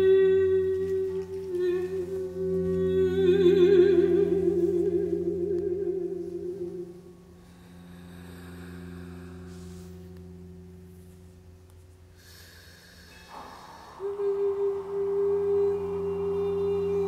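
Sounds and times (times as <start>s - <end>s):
low sustained drone tones: 0.0s - 17.0s
soft hiss: 0.0s - 17.0s
loud steady tone: 13.3s - 17.0s.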